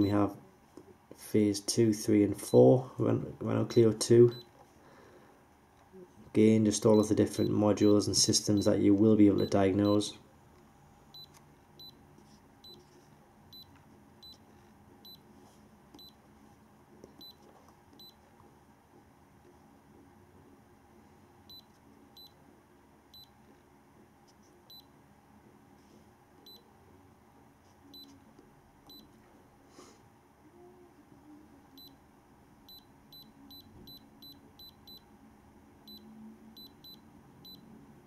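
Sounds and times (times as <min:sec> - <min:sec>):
high-pitched keypress beeps: 0:03.7 - 0:04.5, 0:09.4 - 0:10.0, 0:31.7 - 0:32.0, 0:32.7 - 0:35.1.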